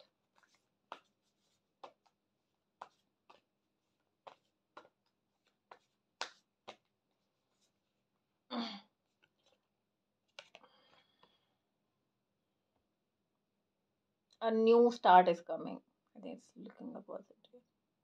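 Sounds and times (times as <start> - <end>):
cards shuffling by hand: 0.0 - 8.1, 9.0 - 11.4.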